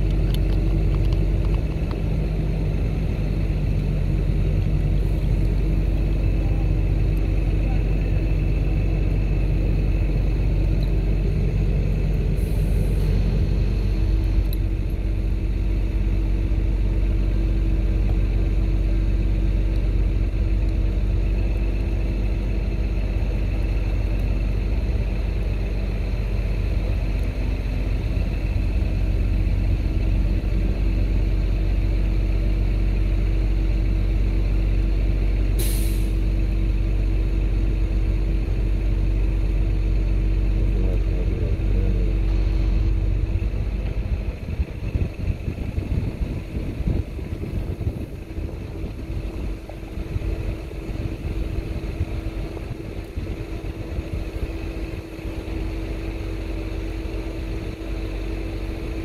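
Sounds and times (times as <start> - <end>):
constant hum: 0.0 - 59.0
engine droning: 0.0 - 59.0
sharp hiss: 35.6 - 36.3.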